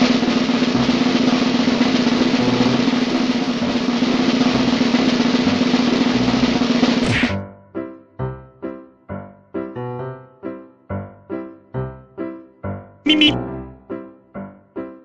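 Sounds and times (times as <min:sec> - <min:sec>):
snare drum roll: 0:00.0 - 0:07.4.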